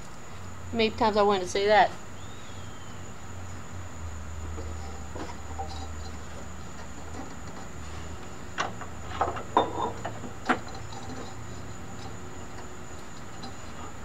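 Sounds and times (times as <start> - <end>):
drive belt knocks and clanks: 8.5 - 14.0.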